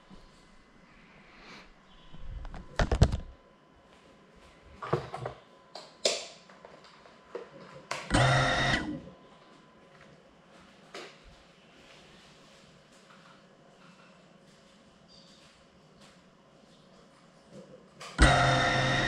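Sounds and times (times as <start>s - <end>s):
mechanical buzz: 7.9s - 9.2s, 18.2s - 19.0s.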